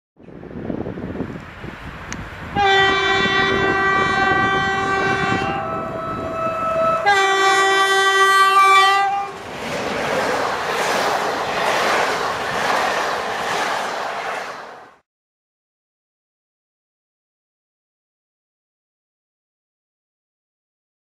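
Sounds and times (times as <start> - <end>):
steady rushing noise: 0.2 - 2.6, 9.3 - 15.0
train horn blasts: 2.5 - 9.4.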